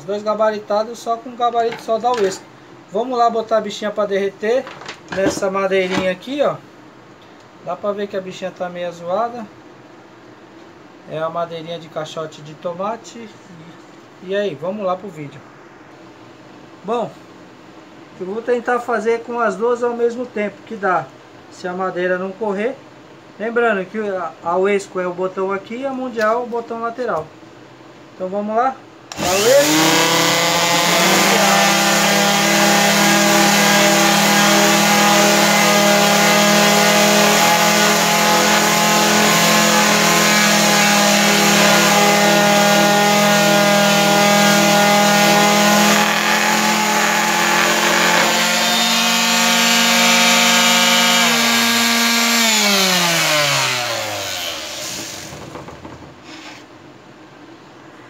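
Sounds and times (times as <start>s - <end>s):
electric sanders humming: 29.1s - 55.8s
sandpaper rasping on wood: 29.5s - 51.8s.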